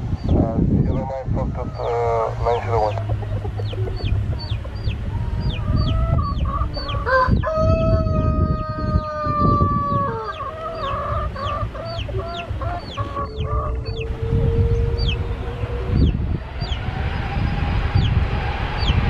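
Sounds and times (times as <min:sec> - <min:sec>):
steady low rumble: 0:00.0 - 0:19.0
small bird chirping: 0:00.1 - 0:07.1, 0:08.8 - 0:14.2
clucking calls: 0:00.4 - 0:07.4, 0:08.8 - 0:16.8
rooster crowing: 0:01.4 - 0:19.0.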